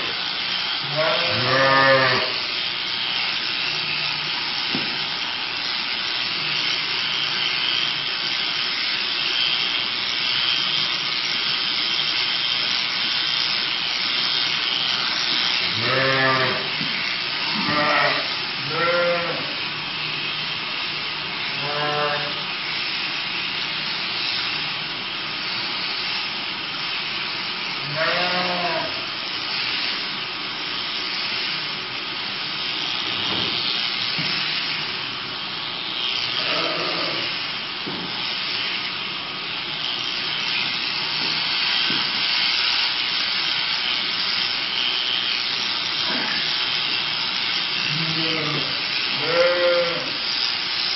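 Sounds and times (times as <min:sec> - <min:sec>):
electric shears buzzing: 0:00.0 - 0:50.9
sheep bleating: 0:00.8 - 0:02.5, 0:15.6 - 0:16.8, 0:17.5 - 0:19.7, 0:21.5 - 0:22.4, 0:27.8 - 0:29.1, 0:36.3 - 0:37.4, 0:47.8 - 0:50.2.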